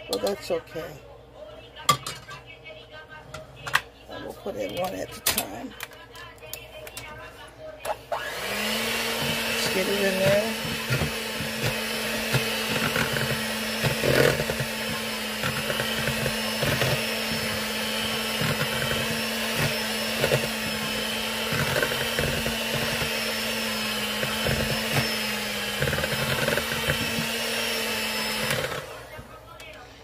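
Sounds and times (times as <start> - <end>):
electric hand mixer running: 7.9 - 29.5
beaters knocking metal bowl: 8.6 - 28.8.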